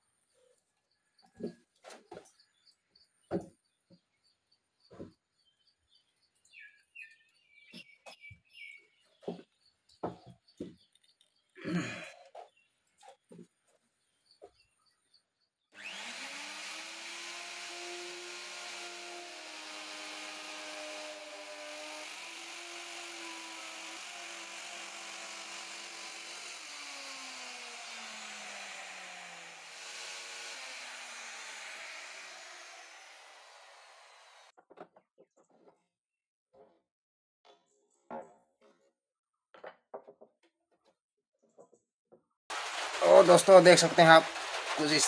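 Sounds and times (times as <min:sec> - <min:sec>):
electric router cutting wood: 0:15.8 - 0:34.5
chips brushed from groove: 0:42.5 - 0:45.0.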